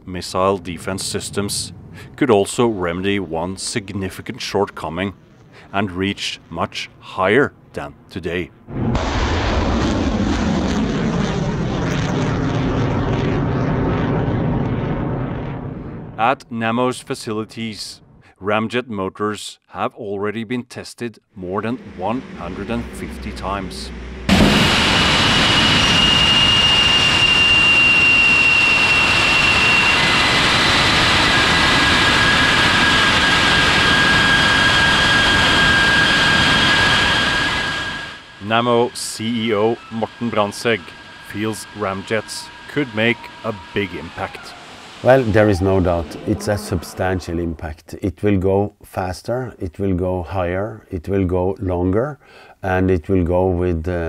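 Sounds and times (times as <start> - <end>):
rocket motors rushing rumble: 8.6 - 16.2, 21.4 - 47.5
high whistle: 24.6 - 30.6, 32.3 - 46.0.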